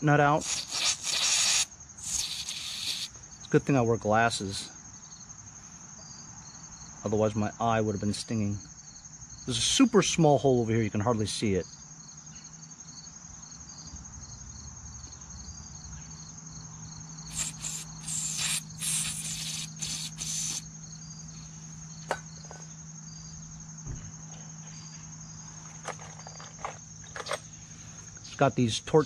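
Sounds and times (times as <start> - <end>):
crickets chirping: 0.0 - 29.0
aerosol spray hissing: 0.4 - 3.1, 17.3 - 20.7.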